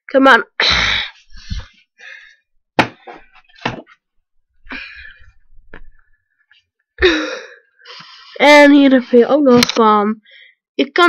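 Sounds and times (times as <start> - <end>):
thump: 2.8 - 3.9.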